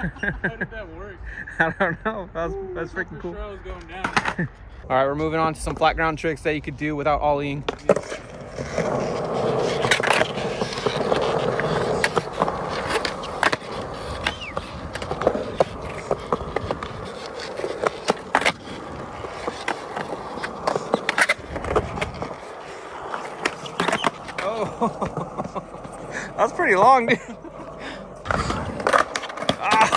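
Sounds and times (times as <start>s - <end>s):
skateboard rolling on concrete: 2.8s - 29.9s
skateboard clacking on ground: 7.6s - 26.0s, 28.2s - 29.9s.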